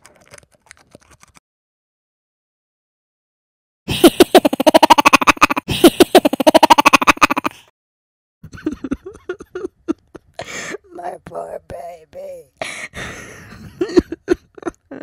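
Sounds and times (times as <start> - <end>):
cartoon squirrel chattering: 4.3 - 5.6, 6.2 - 7.6.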